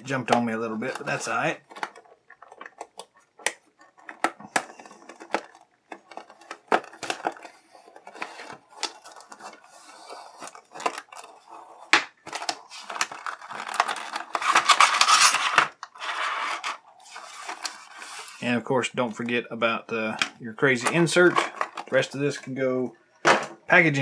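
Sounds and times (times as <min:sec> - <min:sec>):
plastic blister crinkling: 0:00.0 - 0:16.0.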